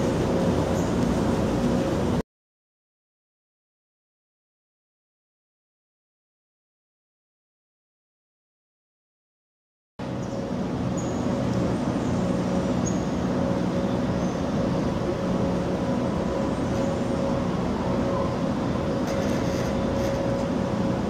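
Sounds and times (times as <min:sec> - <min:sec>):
machinery humming: 0:00.0 - 0:02.2, 0:10.0 - 0:21.0
short high squeaks: 0:19.0 - 0:20.3.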